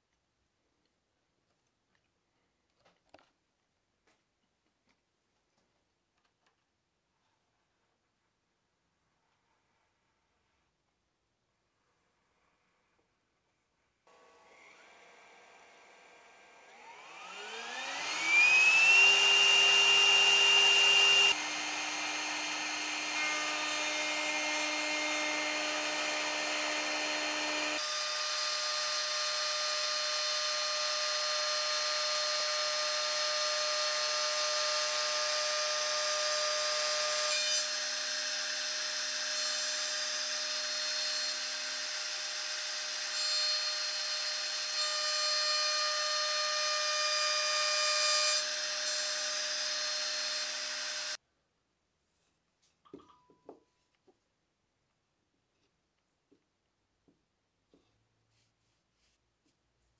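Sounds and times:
router bit cutting wood: 0:14.1 - 0:51.2.

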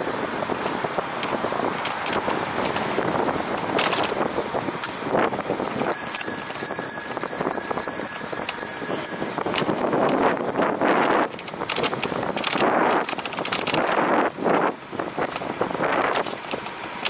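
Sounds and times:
wind and road noise: 0:00.0 - 0:17.0
high metallic ringing: 0:05.8 - 0:09.7.

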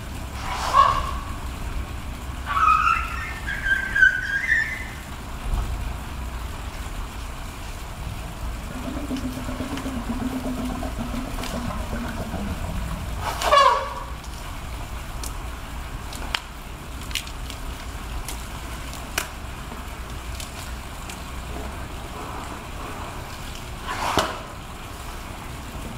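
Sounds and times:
elephant trumpeting: 0:00.4 - 0:01.4, 0:08.6 - 0:14.3
low drawn-out tone: 0:08.3 - 0:14.2.

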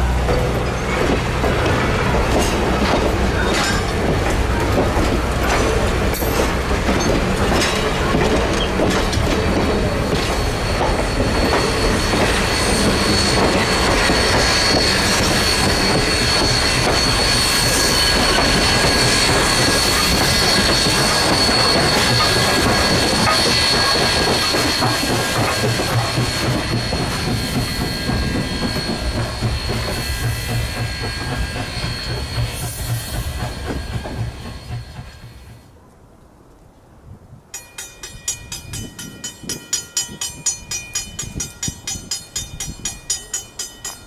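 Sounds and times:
train wheels clicking over rail joints: 0:00.1 - 0:35.7, 0:37.6 - 0:44.0
high wheel squeal: 0:05.3 - 0:35.6.

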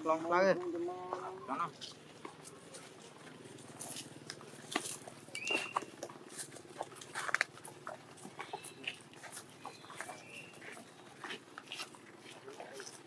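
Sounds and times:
scattered clicks and scuffs: 0:00.1 - 0:13.0
macaques squeaking: 0:01.2 - 0:13.0.

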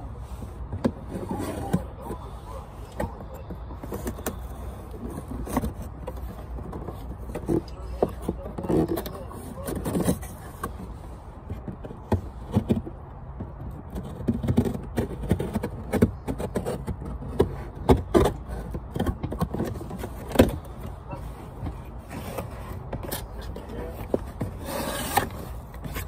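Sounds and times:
knife cutting cardboard box: 0:22.0 - 0:26.0.

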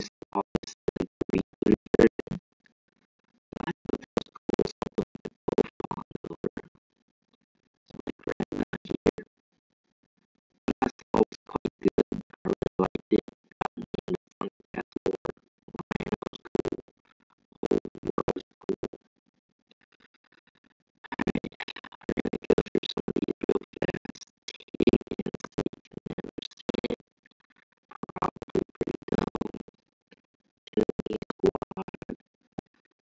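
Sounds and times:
choppy stuttering background music: 0:00.0 - 0:02.4, 0:03.6 - 0:06.7, 0:10.7 - 0:16.9, 0:21.1 - 0:27.0.

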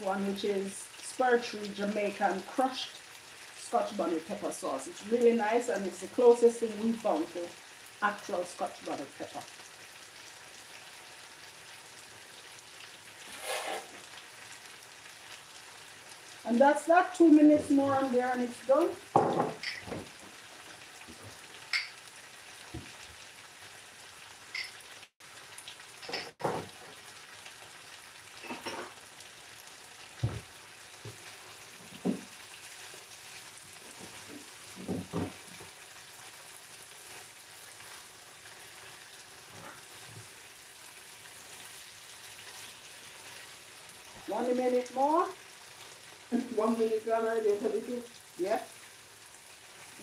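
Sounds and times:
food sizzling in a frying pan: 0:00.0 - 0:50.0
utensil clinking and scraping pan: 0:13.2 - 0:14.0.

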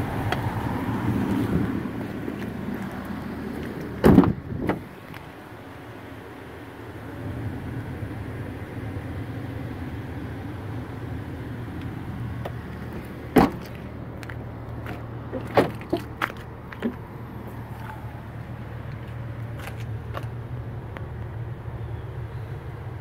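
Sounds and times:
car door shutting with thud: 0:04.0 - 0:04.9, 0:13.3 - 0:13.8, 0:15.3 - 0:16.1.

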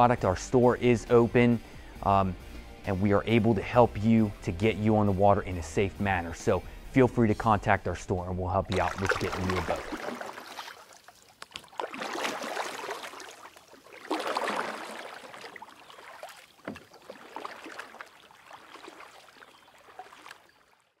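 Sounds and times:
water dripping and trickling: 0:08.7 - 0:21.0
water splashing and lapping: 0:08.7 - 0:21.0.

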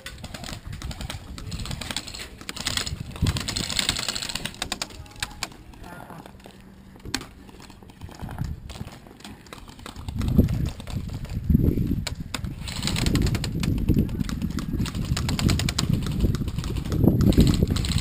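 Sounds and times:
rapid sharp clicks: 0:00.0 - 0:05.9, 0:12.0 - 0:18.0
thumping rumble on microphone: 0:10.0 - 0:17.9.

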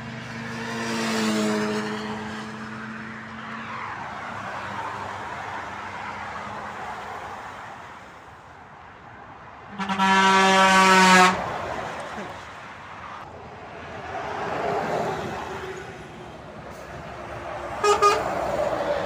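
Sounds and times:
motorway traffic: 0:00.0 - 0:19.0
motorcycle passing: 0:00.3 - 0:03.1
truck air horn blast: 0:09.7 - 0:11.5, 0:17.7 - 0:18.6.

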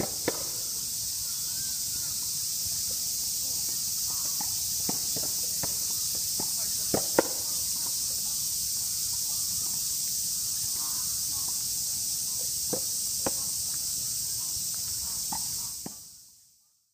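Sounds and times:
tennis balls being hit: 0:00.0 - 0:00.6
cicadas chorus: 0:00.0 - 0:16.9.

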